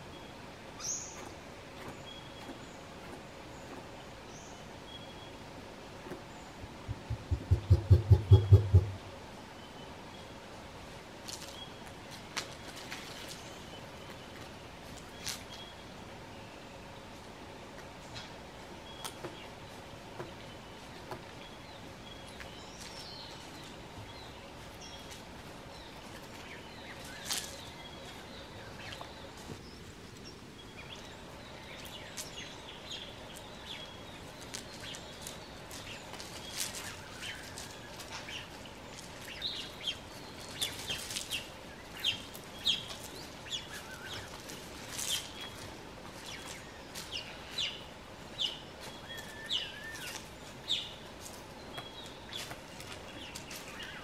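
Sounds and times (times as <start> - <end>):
chicks peeping: 6.9 - 9.0.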